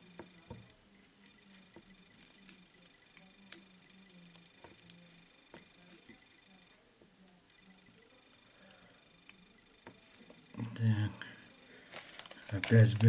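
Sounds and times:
faint low hum: 0.0 - 13.0
small clicks and ticks: 0.2 - 9.9.

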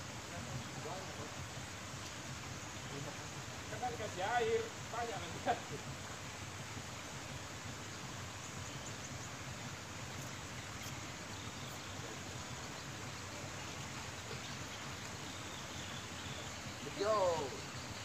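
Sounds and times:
outdoor ambient hiss: 0.0 - 18.0.

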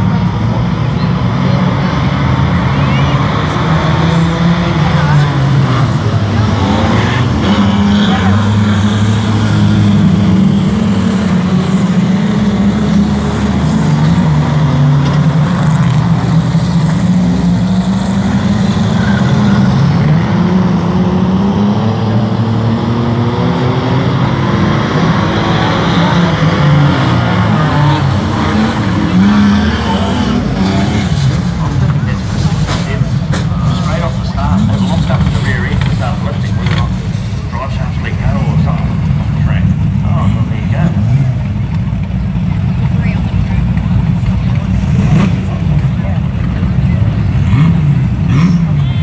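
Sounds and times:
racing car engines: 0.0 - 49.0.

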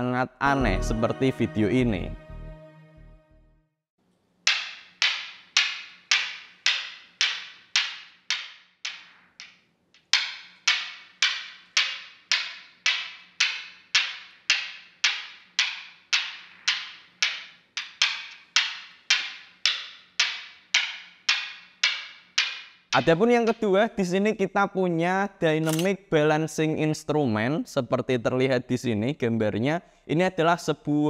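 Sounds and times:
newton's cradle balls clacking: 4.4 - 23.8.

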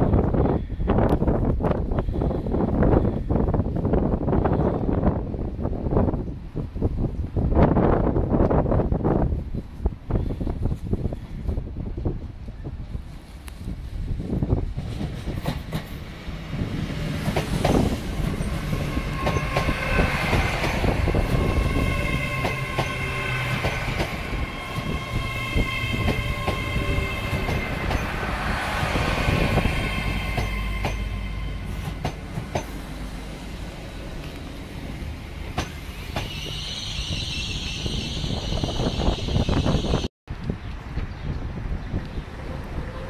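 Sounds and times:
train rumble: 0.0 - 43.0
high-pitched train whine: 16.4 - 40.1
train wheels clicking over rail joints: 31.7 - 32.9, 35.4 - 36.5.

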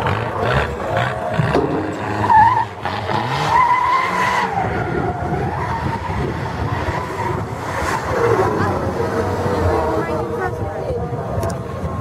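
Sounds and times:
car engines running hard: 0.0 - 12.0.

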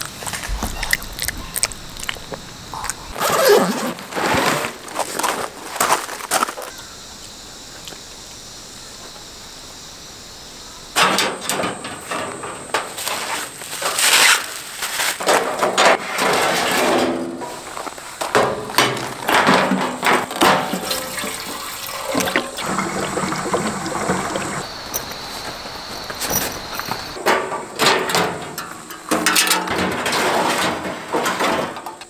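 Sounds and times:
liquid gurgling and splashing into tank: 20.4 - 24.7.

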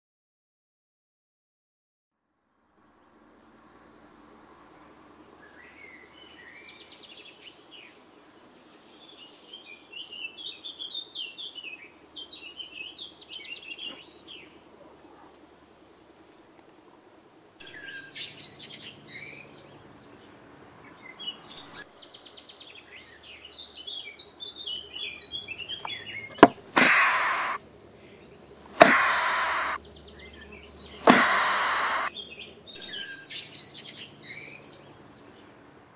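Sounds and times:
bird twittering and churring: 17.6 - 35.8
bird hissing: 25.8 - 27.6, 28.6 - 29.8, 30.8 - 32.2.

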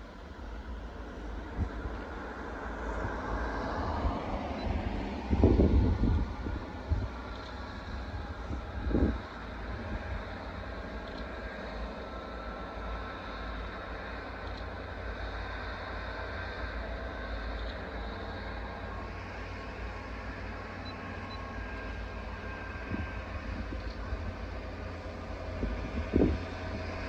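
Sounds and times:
wind buffeting microphone: 1.4 - 11.1, 22.5 - 27.0.

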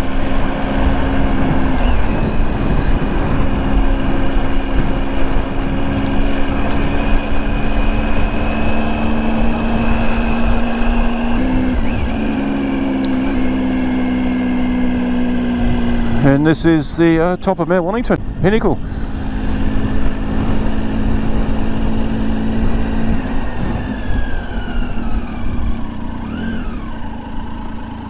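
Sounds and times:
dense low rumble: 0.0 - 26.1
motorcycle engine running: 0.0 - 28.0.

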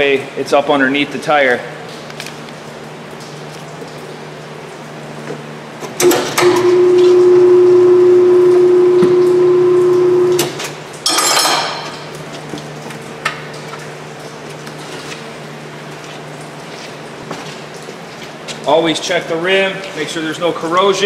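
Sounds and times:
tire changer motor humming: 6.0 - 10.7.

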